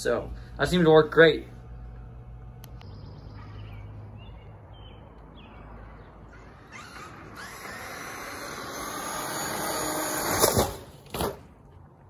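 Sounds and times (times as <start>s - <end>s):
street ambience: 0.0s - 12.0s
bird chirps: 2.7s - 7.0s
rc truck driving on pavement: 3.6s - 11.9s.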